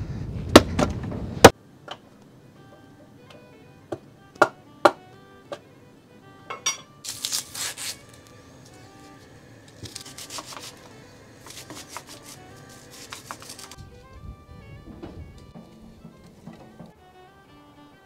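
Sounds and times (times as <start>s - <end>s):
soft background music: 1.6s - 18.0s
knife peeling and cutting food: 7.0s - 13.9s.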